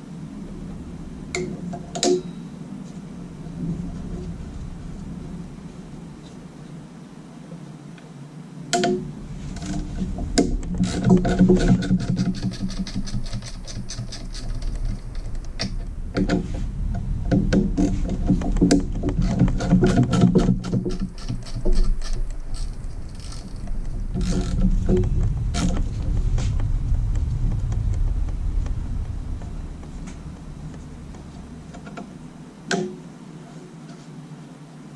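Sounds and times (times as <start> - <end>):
hand ratchet clicking: 10.9 - 15.8, 19.4 - 24.7.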